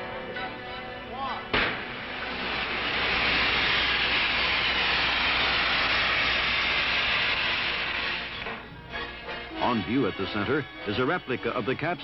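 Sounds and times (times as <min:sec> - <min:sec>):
rocket engine exhaust hissing: 0:01.5 - 0:11.0.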